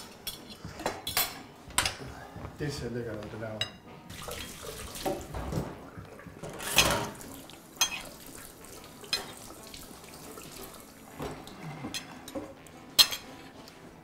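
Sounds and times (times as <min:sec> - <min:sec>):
cutlery and dishes clinking: 0:00.0 - 0:02.1, 0:06.4 - 0:08.2, 0:08.9 - 0:09.6, 0:11.1 - 0:13.9.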